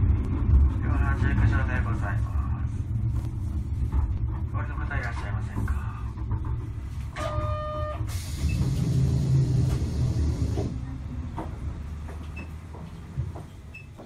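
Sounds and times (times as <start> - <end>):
streetcar running rumble: 0.0 - 14.0
hiss of noise: 8.1 - 10.7.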